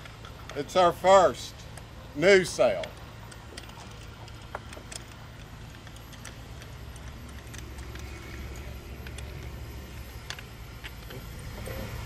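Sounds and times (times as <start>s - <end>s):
low steady rumble: 0.0s - 12.0s
clicks and taps of sail fittings: 2.6s - 11.8s.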